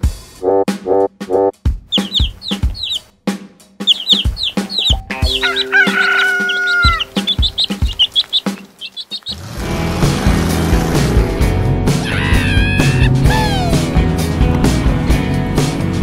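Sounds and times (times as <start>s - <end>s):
steady drum beat: 0.0s - 8.8s
chicks cheeping: 1.9s - 3.1s, 3.8s - 9.6s, 12.0s - 13.8s
rooster crowing: 4.4s - 7.7s, 12.0s - 13.6s.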